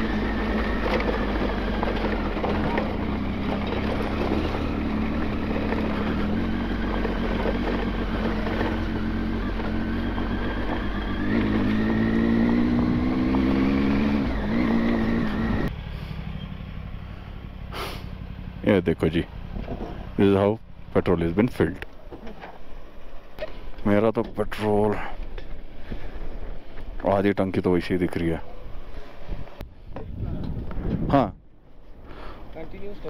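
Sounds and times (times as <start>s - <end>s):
motorcycle engine accelerating: 0.0s - 22.4s
wind and road noise: 0.0s - 33.0s.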